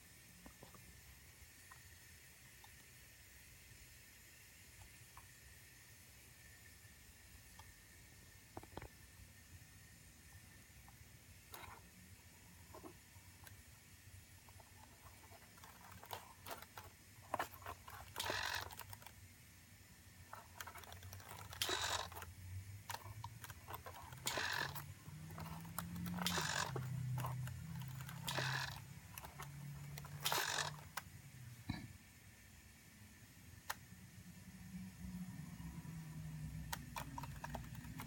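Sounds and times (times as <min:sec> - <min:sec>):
servo whirring: 0:14.5 - 0:19.1, 0:20.3 - 0:31.0.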